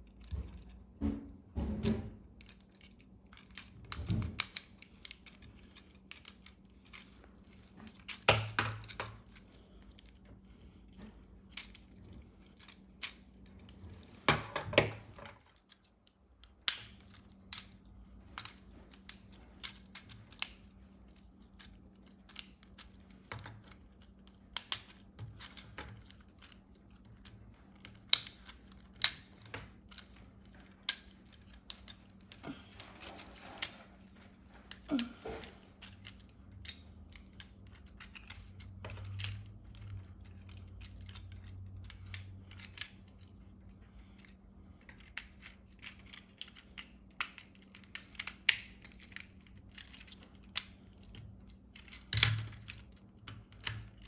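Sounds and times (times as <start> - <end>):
plastic toy clicks and rattles: 2.3 - 10.1, 18.4 - 32.4, 34.7 - 54.0.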